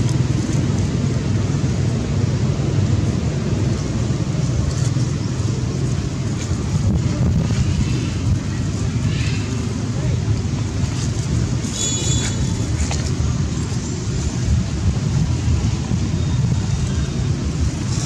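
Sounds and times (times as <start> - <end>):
low outdoor rumble: 0.0 - 18.0
high-pitched squeak: 11.6 - 12.6.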